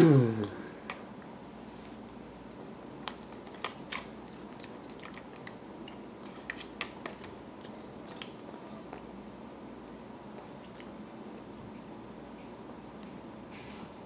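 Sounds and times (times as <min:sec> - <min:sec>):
chewing with mouth clicks: 0:03.0 - 0:09.1, 0:10.3 - 0:11.5.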